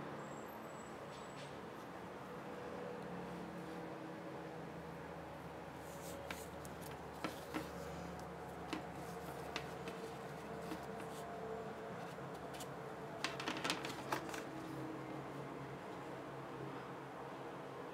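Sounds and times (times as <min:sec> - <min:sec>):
cable clicks and rubbing: 0:06.0 - 0:11.3, 0:12.0 - 0:14.5.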